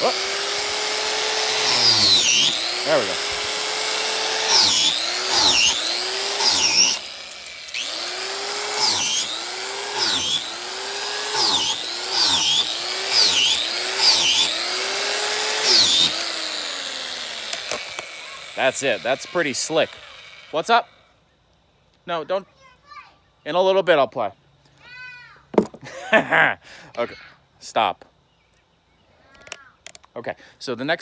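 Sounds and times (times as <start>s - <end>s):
grinder bit drilling into wood: 0.0s - 20.8s.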